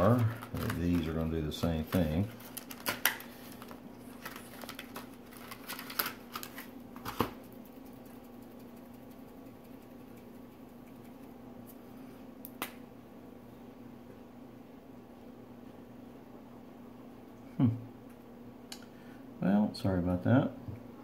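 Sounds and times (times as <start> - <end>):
plastic pack clicking and rattling: 0.0 - 1.2, 1.9 - 7.3
faint low hum: 0.0 - 21.0.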